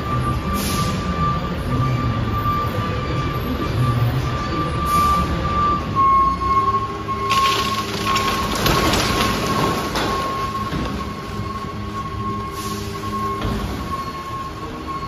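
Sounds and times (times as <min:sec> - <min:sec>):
garbage truck engine whine: 0:00.0 - 0:15.0
trash sliding and clattering: 0:07.2 - 0:11.6.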